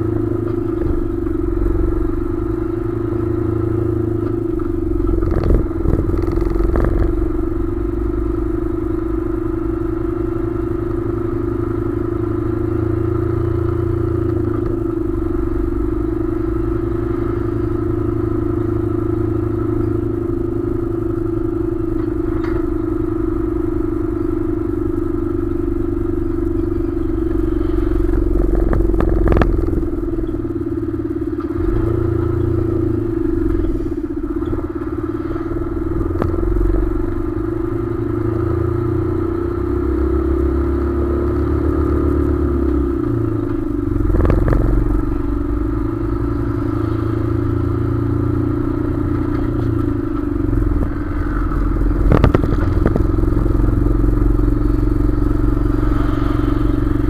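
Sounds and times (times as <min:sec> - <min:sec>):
truck diesel engine droning: 0:00.0 - 0:57.0
trailer chassis rattling: 0:25.7 - 0:37.7, 0:48.6 - 0:57.0
sharp knocks and clatters: 0:49.2 - 0:53.4.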